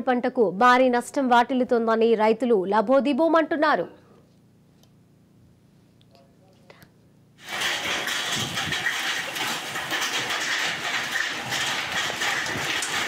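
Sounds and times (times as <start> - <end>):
hail and heavy rain pelting: 7.4 - 13.0.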